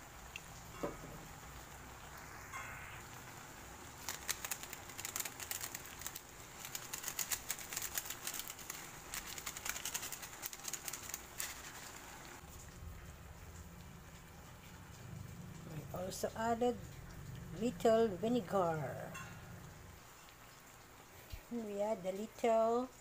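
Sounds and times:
foil sachet crinkling: 3.9 - 12.4.

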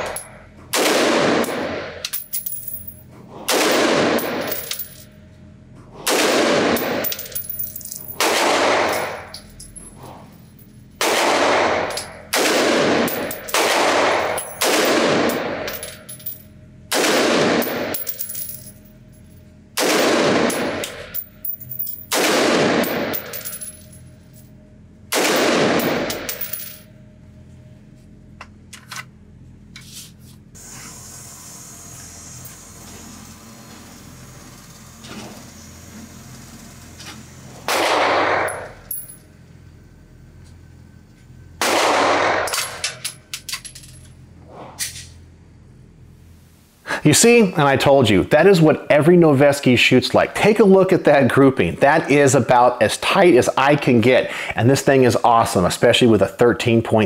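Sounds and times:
rifle shots ringing indoors: 0.0 - 2.3, 3.4 - 5.0, 6.0 - 9.5, 11.0 - 16.2, 16.9 - 18.8, 19.4 - 27.1, 37.6 - 39.0, 41.6 - 43.6.

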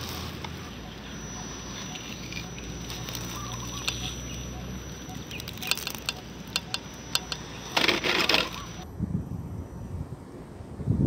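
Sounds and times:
toy car tires crackling on gravel: 0.0 - 8.8
low steady hum: 0.0 - 10.9.

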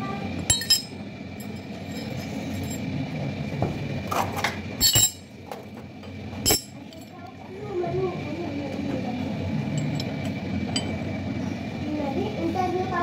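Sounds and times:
metal parts clinking: 0.5 - 2.8, 4.8 - 5.3, 6.4 - 7.2.

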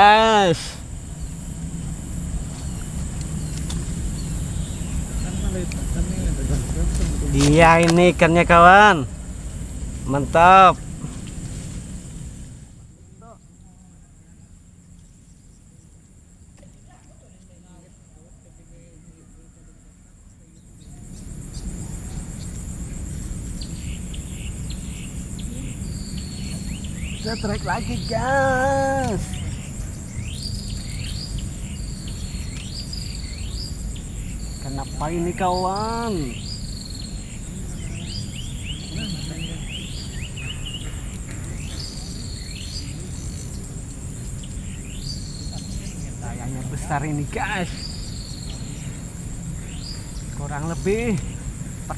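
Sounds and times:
birds chirping: 0.0 - 18.0, 18.6 - 51.9
insects buzzing: 0.0 - 51.9
low rumble: 0.8 - 12.9.

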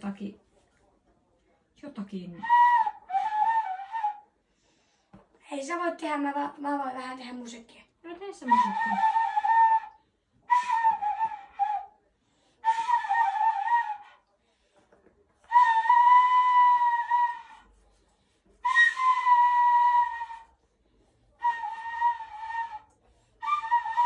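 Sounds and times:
person whistling a tune: 8.5 - 11.9, 12.6 - 14.2, 18.6 - 20.5.

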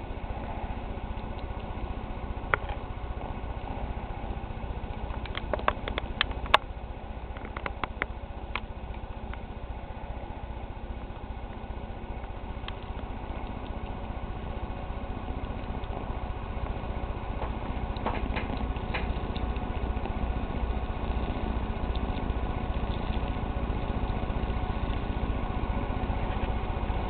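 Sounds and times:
low hum: 0.0 - 27.0
sharp clicks: 17.4 - 25.2.

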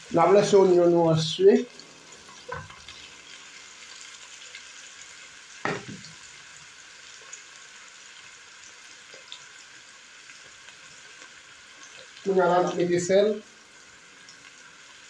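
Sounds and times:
onions sizzling in oil: 0.0 - 15.0
short knock: 5.6 - 6.1.

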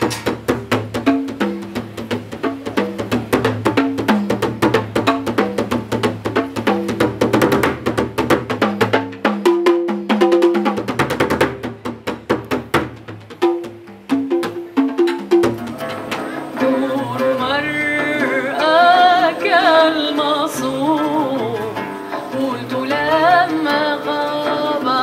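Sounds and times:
fast drumming with drumsticks: 0.0 - 25.0.

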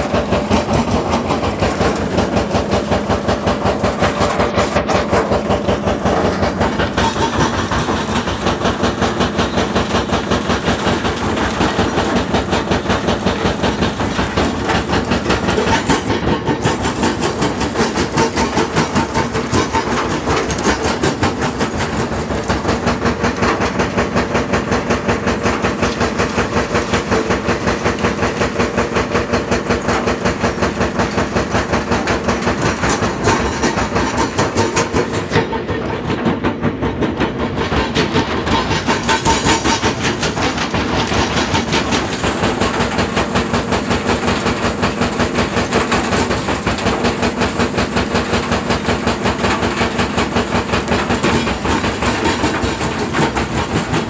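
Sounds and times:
vibrating feeder rattling and rumbling: 0.0 - 54.0.

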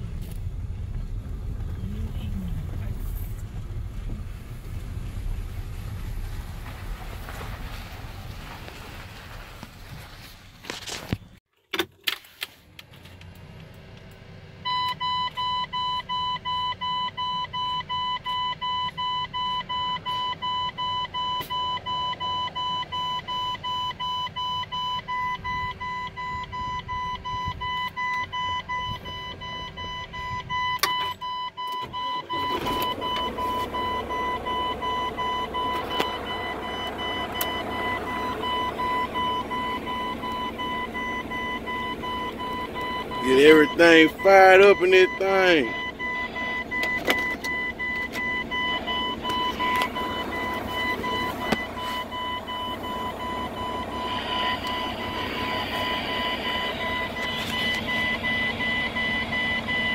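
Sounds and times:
road and wind noise: 0.0 - 59.9
dashboard warning buzzer beeping: 36.7 - 59.9.

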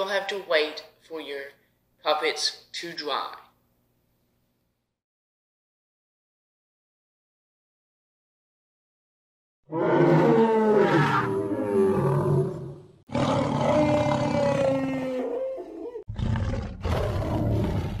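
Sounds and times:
dinosaur roars: 9.7 - 18.0.

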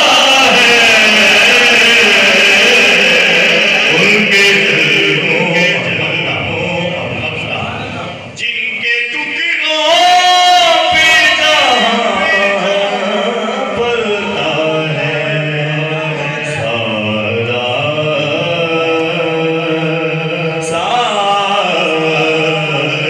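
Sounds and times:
man chanting over loudspeaker: 0.0 - 23.0.

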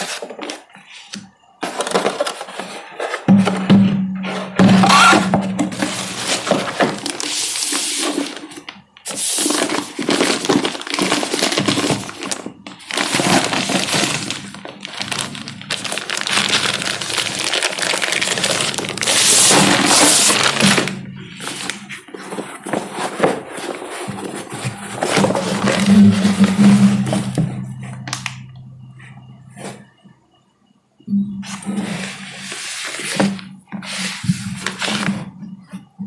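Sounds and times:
packaging crackling rustle: 5.8 - 25.9.

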